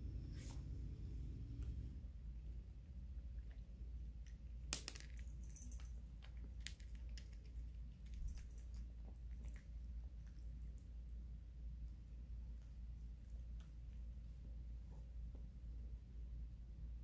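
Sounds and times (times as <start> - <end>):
cat crunching dry kibble: 4.3 - 10.9.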